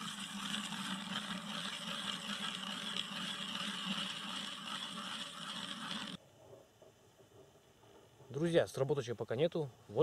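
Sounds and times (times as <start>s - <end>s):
ice auger grinding through ice: 0.0s - 6.2s.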